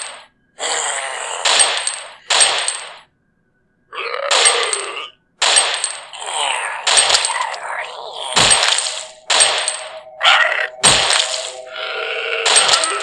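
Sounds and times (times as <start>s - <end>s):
sharp electronic sound effects: 8.2s - 13.0s.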